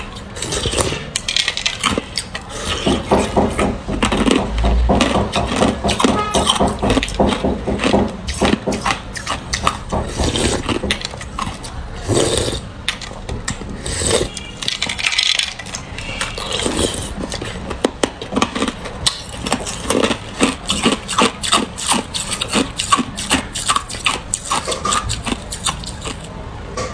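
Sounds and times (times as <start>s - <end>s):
plastic spoon scraping ice: 0.0s - 4.4s, 13.6s - 26.3s.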